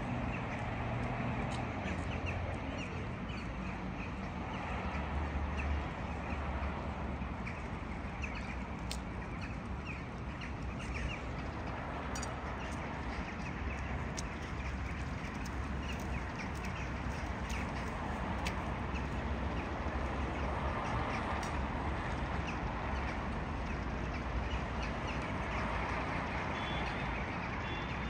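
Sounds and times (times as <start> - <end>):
flock of birds calling: 7.3 - 21.6.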